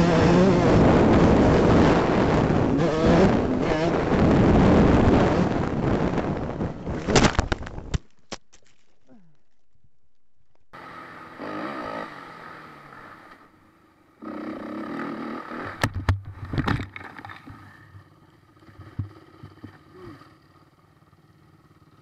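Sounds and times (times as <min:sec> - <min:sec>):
dirt bike engine revving: 0:00.0 - 0:07.1, 0:10.5 - 0:15.9
bike crashing thuds and scrapes: 0:06.8 - 0:09.0.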